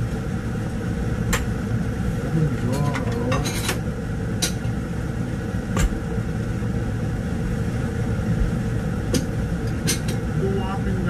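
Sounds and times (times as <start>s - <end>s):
stove rumbling: 0.0s - 11.0s.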